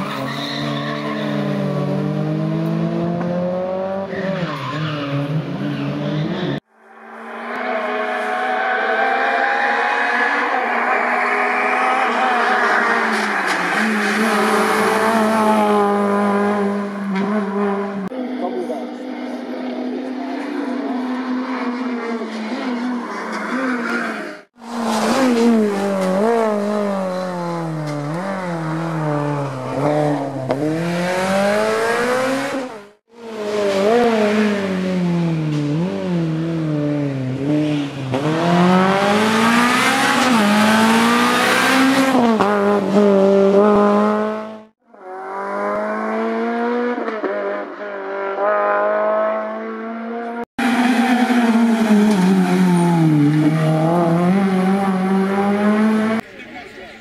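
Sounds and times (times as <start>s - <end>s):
rally car engine revving: 0.0s - 56.2s.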